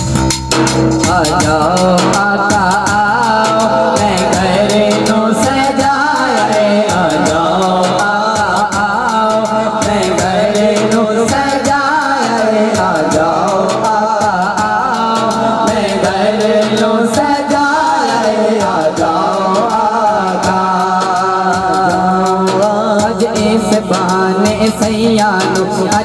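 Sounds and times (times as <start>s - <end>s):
steady beat: 0.0s - 26.0s
man singing into a microphone: 1.0s - 26.0s.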